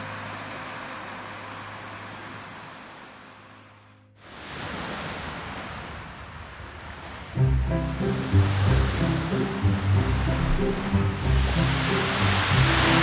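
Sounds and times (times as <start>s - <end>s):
insect trill: 0.0s - 4.1s, 5.0s - 13.0s
night insects chirping: 0.0s - 13.0s
wind: 0.0s - 13.0s
sea surf: 4.2s - 13.0s.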